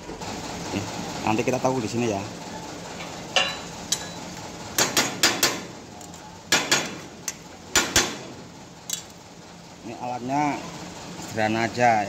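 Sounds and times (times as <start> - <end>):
hammer striking steel plate: 4.8 - 5.7, 6.5 - 7.0, 7.7 - 8.2.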